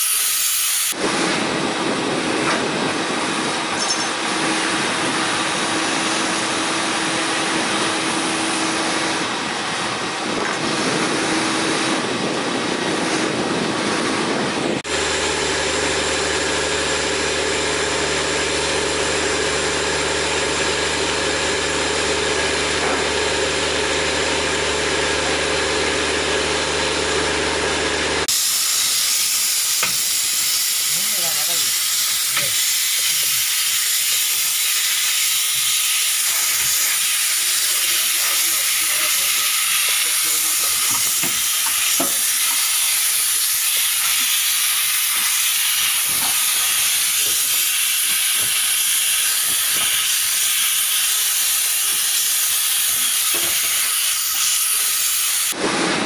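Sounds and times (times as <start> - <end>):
cleaning hose hissing: 0.0 - 1.0, 28.3 - 55.6
disinfectant spray hissing: 0.0 - 1.0, 28.3 - 52.5
machine drone with low hum: 0.9 - 28.8.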